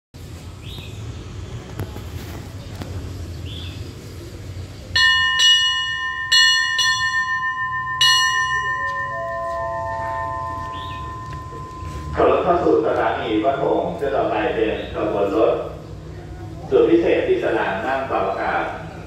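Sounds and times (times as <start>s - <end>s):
metal bell struck by hand: 5.0s - 12.2s
rising chime notes: 5.0s - 13.0s.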